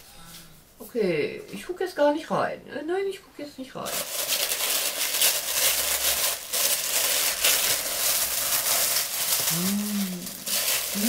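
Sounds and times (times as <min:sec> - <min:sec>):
packaging crinkling and rustling: 0:03.8 - 0:11.0.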